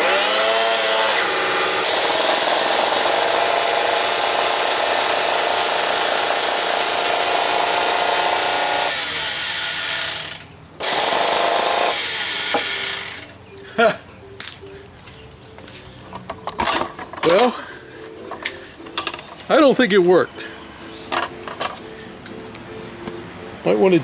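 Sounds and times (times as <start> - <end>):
router motor whining: 0.0 - 13.3.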